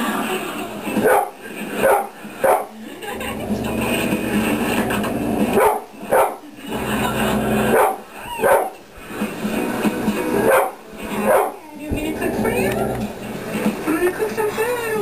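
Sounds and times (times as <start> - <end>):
television programme: 0.0 - 15.0
dog barking: 1.0 - 2.8, 5.0 - 6.5, 7.6 - 8.8, 10.4 - 11.6.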